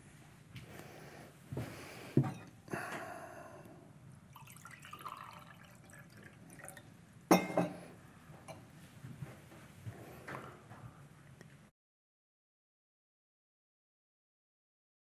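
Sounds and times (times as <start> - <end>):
glass clinking: 2.2 - 2.5, 4.4 - 5.9, 6.6 - 7.8
water being poured: 4.3 - 6.9.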